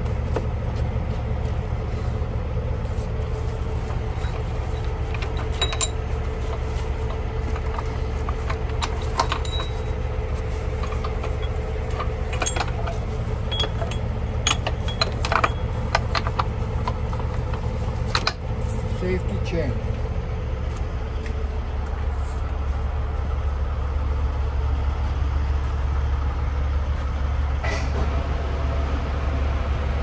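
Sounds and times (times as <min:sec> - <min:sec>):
diesel engine idling: 0:00.0 - 0:30.0
steel chain clanking: 0:03.6 - 0:19.3.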